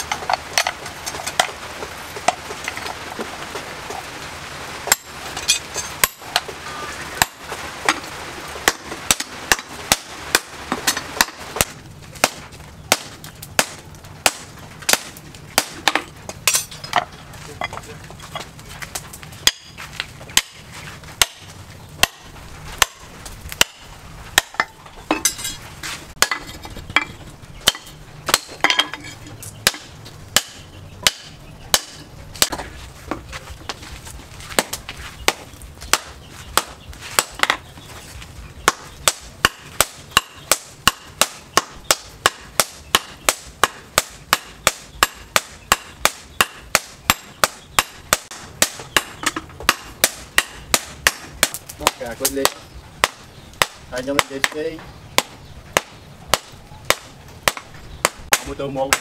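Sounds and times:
hammer striking hot steel on anvil: 4.9 - 6.5, 7.2 - 7.5, 8.6 - 17.1, 19.4 - 20.6, 21.2 - 25.6, 26.2 - 32.6, 38.7 - 54.6.

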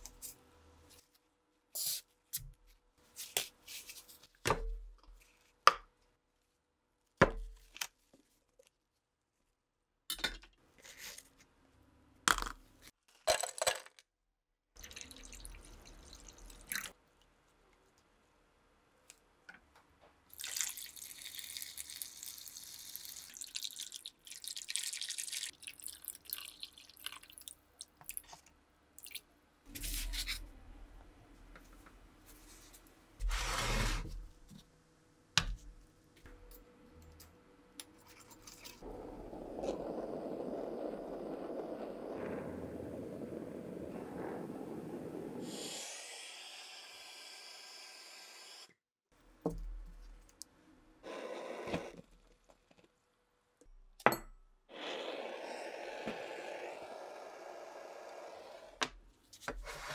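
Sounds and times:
water poured into plastic cup: 14.8 - 17.0, 20.3 - 28.2.

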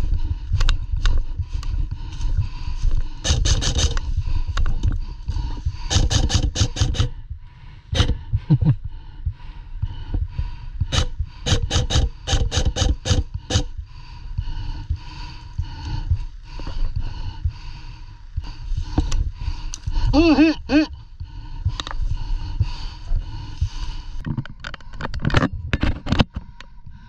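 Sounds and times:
low rumble: 0.0 - 25.9
airsoft guns firing: 5.9 - 7.1, 10.9 - 13.7.

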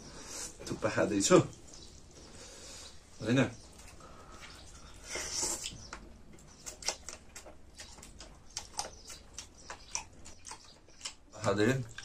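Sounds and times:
chewing: 3.6 - 12.0
slurping: 3.8 - 11.2.

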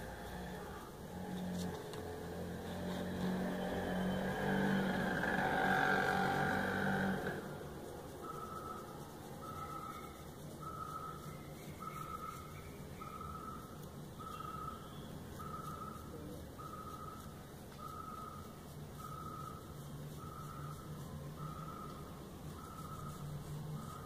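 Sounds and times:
high steady beeps: 8.2 - 24.0
toothbrush scrubbing fingernails: 15.3 - 24.0.

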